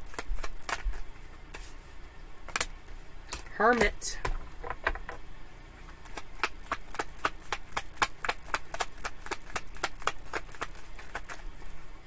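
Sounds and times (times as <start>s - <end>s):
cards being shuffled: 0.0s - 1.8s, 5.9s - 11.6s.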